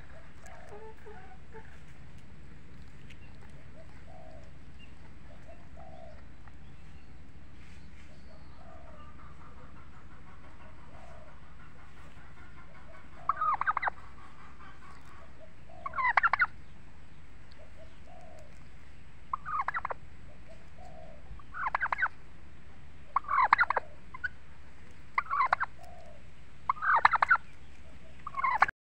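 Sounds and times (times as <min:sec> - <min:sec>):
turkeys gobbling: 0:00.0 - 0:06.6, 0:08.5 - 0:16.6, 0:19.3 - 0:22.2, 0:23.1 - 0:24.5, 0:25.1 - 0:28.7.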